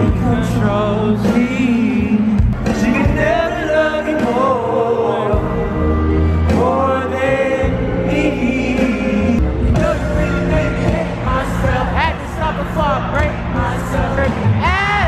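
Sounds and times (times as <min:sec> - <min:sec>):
live pop band with heavy bass: 0:00.0 - 0:15.0
singer's voice: 0:00.0 - 0:15.0.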